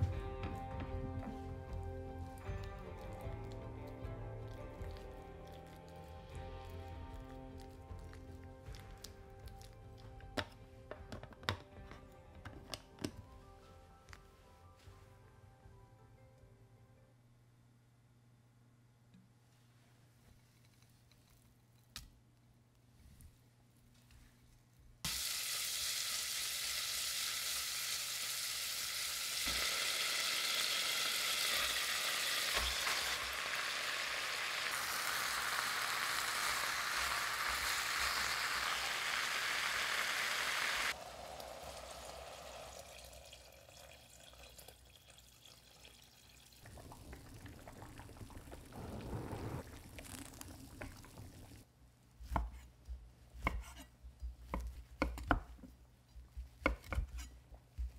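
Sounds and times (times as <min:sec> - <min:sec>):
food sizzling in a frying pan: 0:25.1 - 0:44.5, 0:46.8 - 0:51.6.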